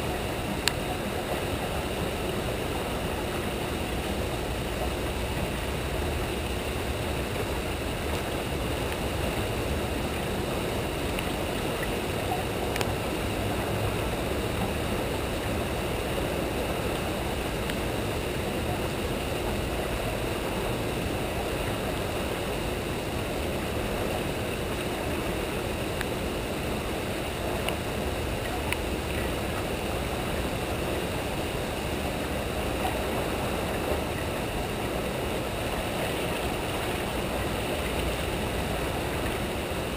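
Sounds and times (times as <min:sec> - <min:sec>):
turbulent water rushing: 0:00.0 - 0:39.9
faint ticks: 0:00.5 - 0:00.9, 0:11.1 - 0:13.0.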